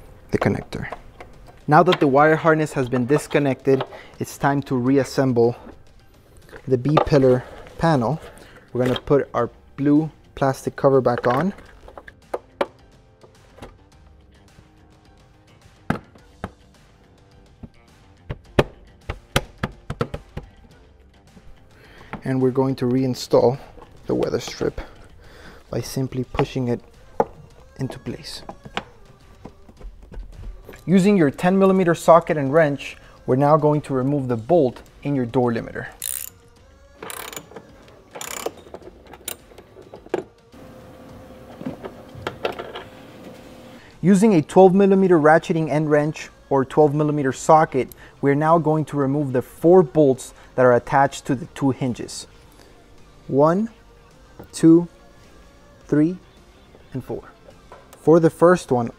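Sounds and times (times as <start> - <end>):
soft background music: 0.0 - 58.9
wrench metallic clicks and scrapes: 35.9 - 36.4, 37.0 - 40.2.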